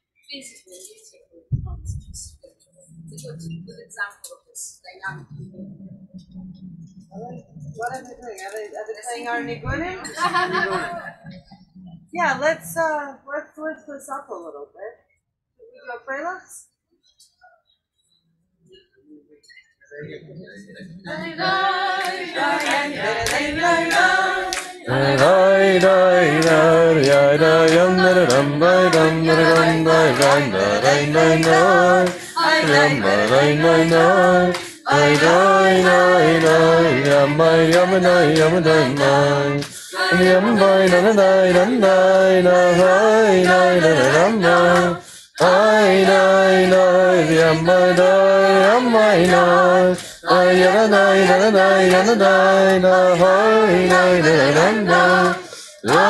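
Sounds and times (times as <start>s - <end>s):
low sung drone: 4.9s - 8.0s
group singing unaccompanied: 9.2s - 11.4s, 20.5s - 56.0s.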